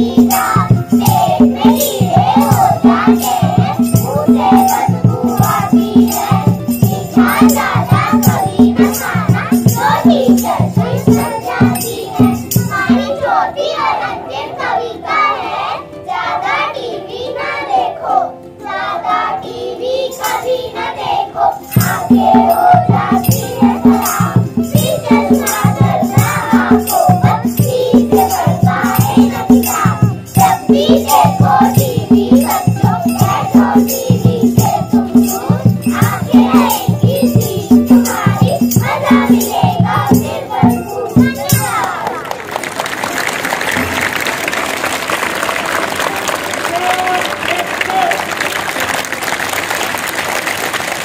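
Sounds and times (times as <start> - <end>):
drum and shaker beat: 0.0 - 13.1, 21.7 - 42.2, 43.2 - 46.1
children singing in unison: 0.0 - 42.2.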